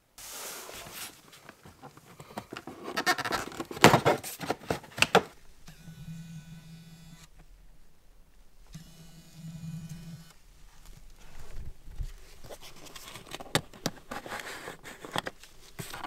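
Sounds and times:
plastic rustling: 0.2s - 5.4s, 10.5s - 16.0s
steady low hum: 5.3s - 16.0s.

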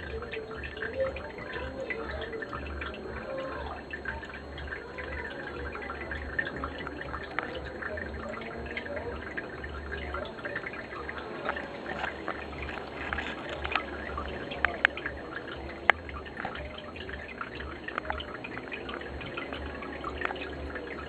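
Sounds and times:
aquarium water trickling: 0.0s - 21.0s
low hum: 0.0s - 21.0s.

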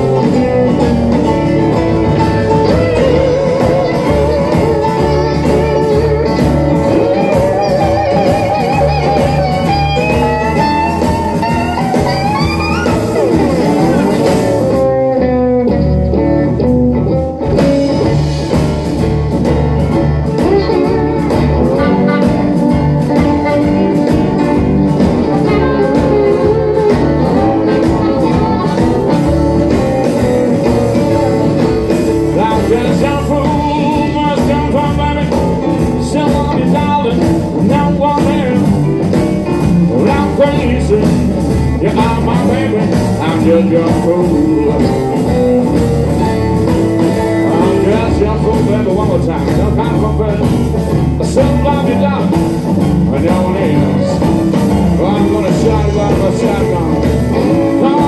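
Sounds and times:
harmonica wavering line: 0.0s - 15.1s, 17.6s - 35.8s
blues band playing: 0.0s - 58.0s.

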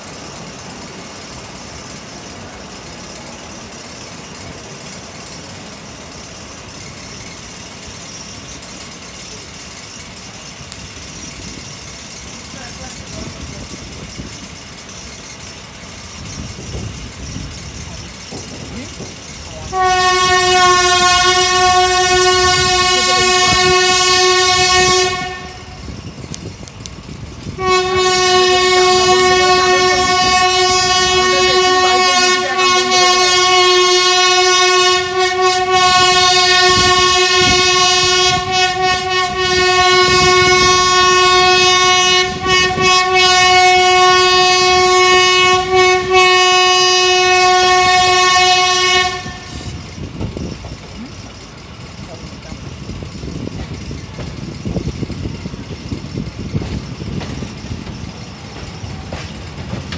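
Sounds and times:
locomotive horn blasts: 19.7s - 25.8s, 27.5s - 49.8s.

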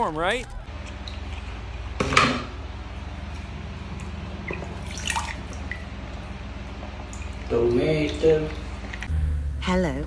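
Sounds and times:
steady low hum: 0.0s - 10.0s
water dripping and splashing: 0.6s - 1.9s, 3.2s - 9.1s.

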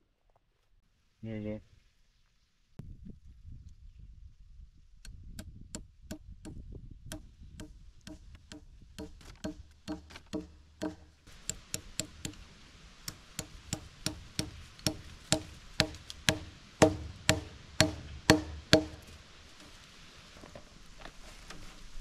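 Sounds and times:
hammer driving nail into wood: 6.1s - 12.4s, 13.1s - 19.1s.

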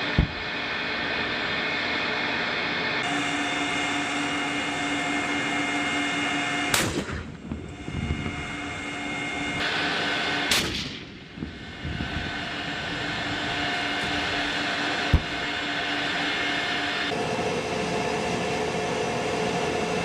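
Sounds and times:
gas turbine engine whining: 0.0s - 20.0s
tank gun shots: 6.7s - 7.3s, 10.5s - 11.1s.

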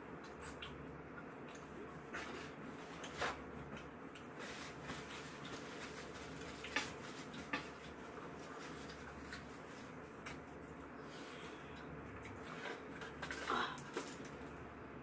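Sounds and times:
soft rustling of tissue: 1.8s - 11.7s.

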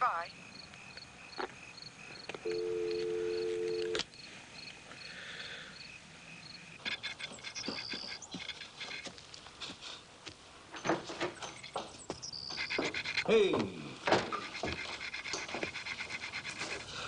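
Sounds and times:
crickets chirping faintly: 0.0s - 17.0s
telephone dial tone: 2.4s - 4.0s.

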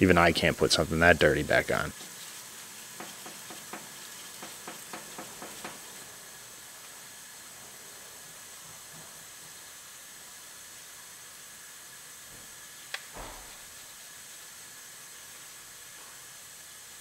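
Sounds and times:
rag wiping plastic hiss: 0.4s - 6.5s.

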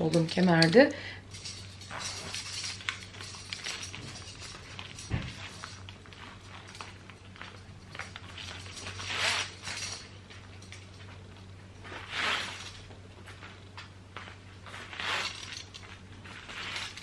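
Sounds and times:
metal belt clicking and rustling: 0.0s - 17.0s.

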